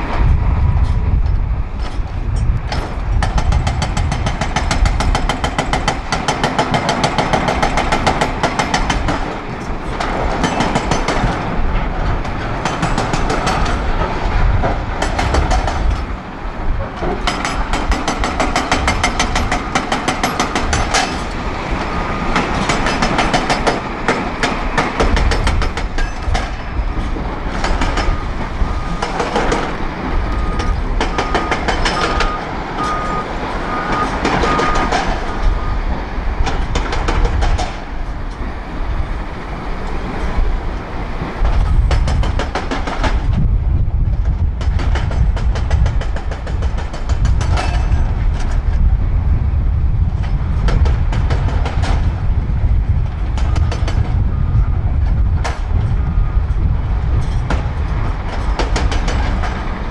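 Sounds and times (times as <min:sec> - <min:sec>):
hydraulic breaker hammering rock: 0:02.7 - 0:16.1, 0:16.9 - 0:21.4, 0:22.3 - 0:28.3, 0:28.9 - 0:33.2, 0:36.4 - 0:37.8, 0:41.4 - 0:43.3, 0:44.6 - 0:48.6, 0:58.3 - 0:59.8
reversing alarm beeping: 0:21.8 - 0:23.1, 0:27.8 - 0:35.9.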